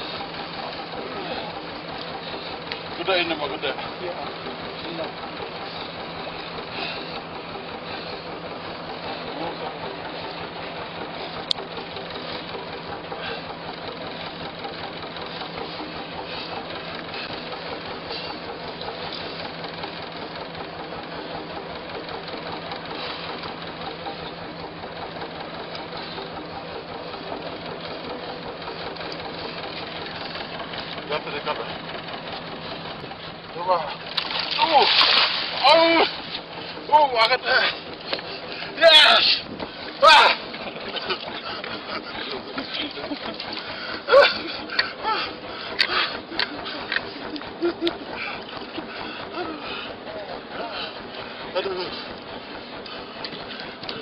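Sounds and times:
boat engine running: 0:00.0 - 0:54.0
wind: 0:00.0 - 0:54.0
sea noise: 0:33.9 - 0:37.0.

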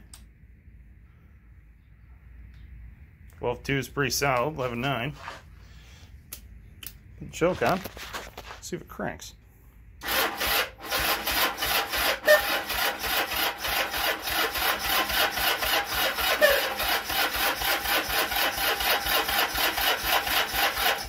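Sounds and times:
motorcycle engine cranking on starter: 0:10.0 - 0:21.0.

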